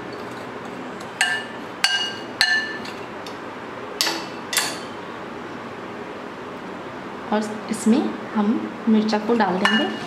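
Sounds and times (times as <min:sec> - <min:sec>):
spoon clinking on glass bowl: 0:01.2 - 0:03.0, 0:09.6 - 0:10.0.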